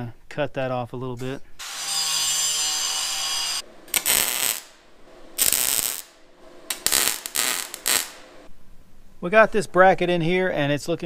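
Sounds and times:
welder sputtering bursts: 3.9 - 4.8, 5.4 - 8.2.

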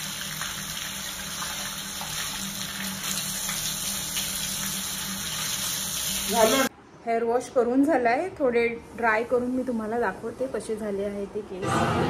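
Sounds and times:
tap water running onto hair: 0.0 - 6.7.

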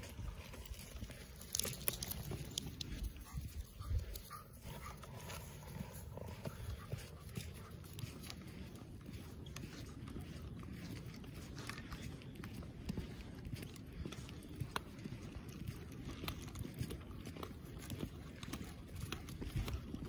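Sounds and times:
footsteps crunching in snow: 0.0 - 14.3.

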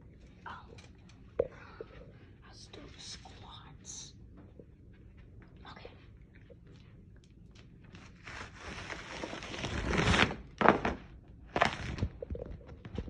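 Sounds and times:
plastic wrap crackles: 7.5 - 13.0
plastic wrap crinkling: 7.5 - 13.0.

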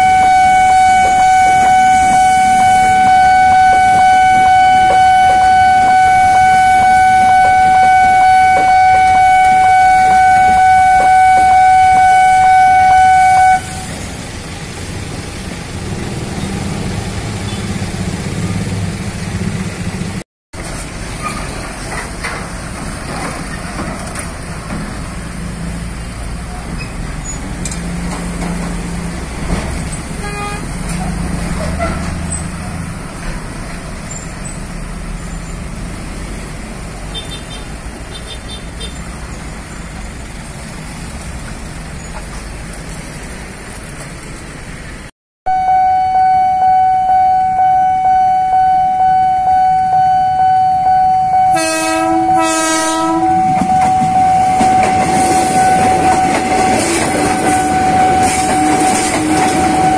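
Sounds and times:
loud steady horn: 0.0 - 14.0, 30.2 - 30.9, 45.5 - 59.9
road traffic engines: 0.0 - 59.9.

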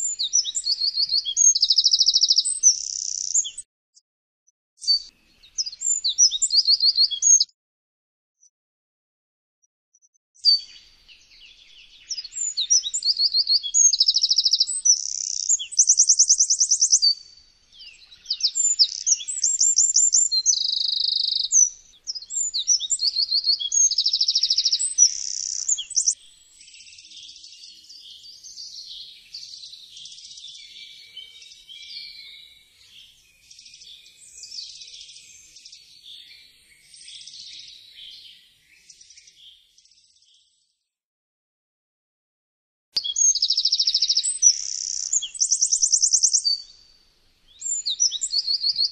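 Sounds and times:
wren singing trills: 0.0 - 3.6, 4.8 - 7.5, 10.4 - 36.1, 43.0 - 46.9, 47.5 - 48.9.

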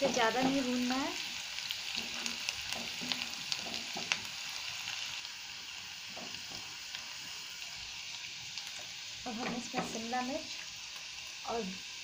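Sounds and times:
food sizzling in hot oil: 0.0 - 12.0
spatula scraping and tapping pan: 2.0 - 4.3, 6.1 - 6.7.

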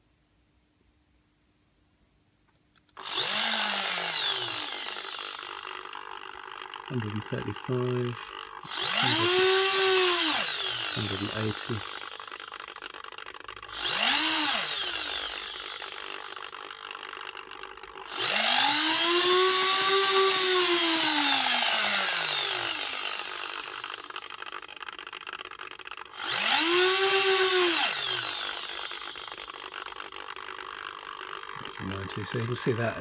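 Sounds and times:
servo motor whining: 2.9 - 12.9, 13.6 - 17.2, 18.0 - 30.1.

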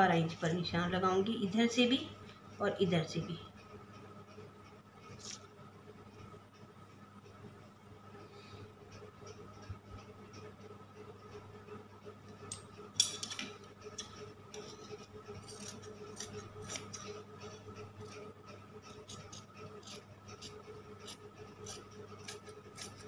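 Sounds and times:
scissors snipping cloth: 15.4 - 17.2.

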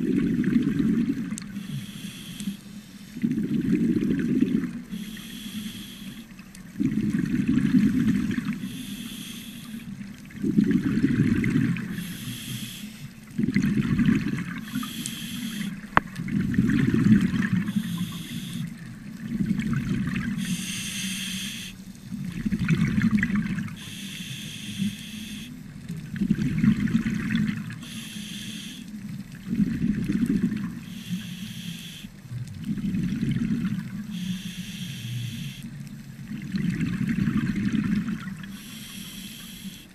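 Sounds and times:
exhaled bubbles rushing underwater: 0.0 - 2.5, 3.1 - 39.9
scuba regulator inhale hiss: 1.5 - 3.3, 4.9 - 6.3, 8.5 - 10.0, 11.8 - 13.2, 14.6 - 15.8, 17.6 - 18.8, 20.3 - 21.8, 23.8 - 25.6, 27.8 - 29.0, 30.8 - 32.2, 34.0 - 35.8, 38.5 - 39.9.

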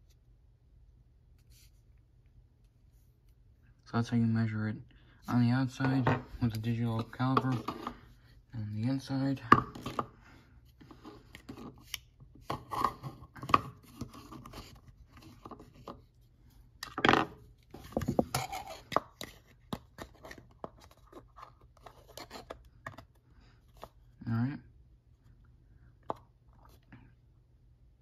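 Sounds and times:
plastic handling noise: 16.9 - 24.0.

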